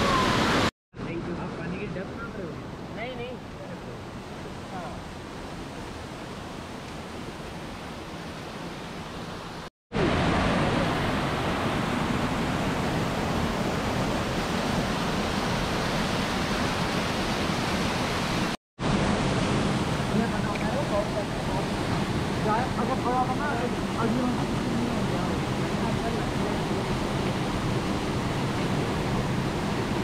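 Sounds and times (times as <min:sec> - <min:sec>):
waterfall rushing into rock pool: 0:00.0 - 0:00.7, 0:10.0 - 0:25.3.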